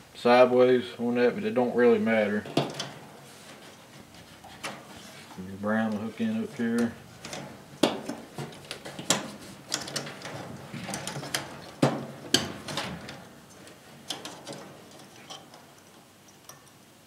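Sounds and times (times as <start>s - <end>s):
wire connectors clicking and snapping: 6.7s - 16.8s.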